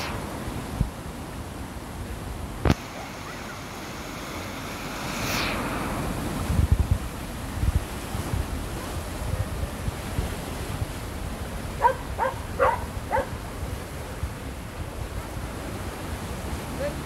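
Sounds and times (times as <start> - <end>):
wind buffeting microphone: 0.0 - 16.9
floodwater rushing: 0.0 - 17.0.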